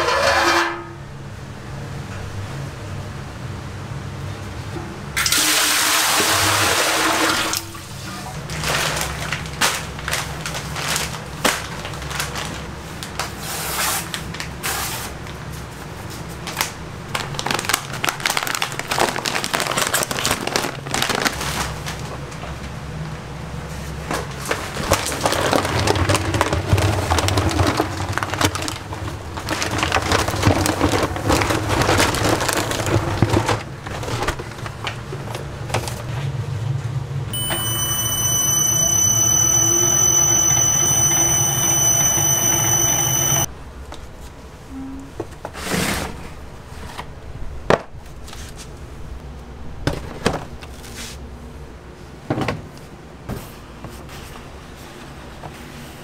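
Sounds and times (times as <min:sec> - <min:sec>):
mixer electric motor whine: 0:37.4 - 0:43.5.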